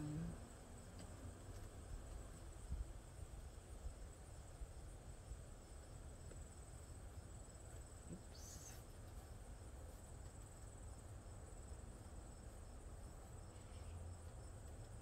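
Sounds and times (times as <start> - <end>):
insect trilling: 8.1 - 9.3.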